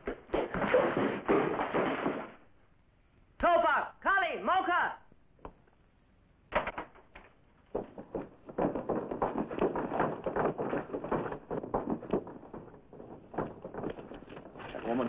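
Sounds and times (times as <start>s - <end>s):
men scuffling: 0.0s - 2.4s, 7.2s - 15.0s.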